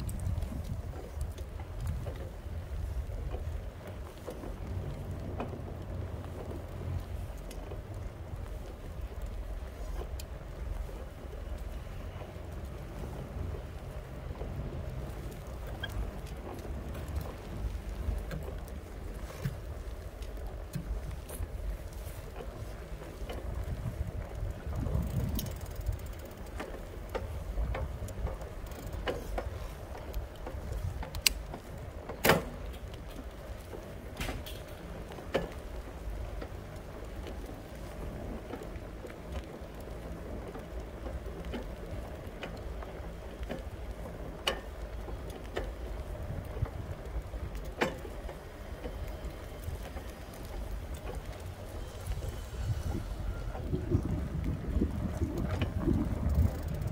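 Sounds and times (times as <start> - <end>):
tyres rolling over asphalt: 0.0 - 56.9
wind rumble on microphone: 0.0 - 56.9
sharp clicks and knocks: 25.2 - 35.7.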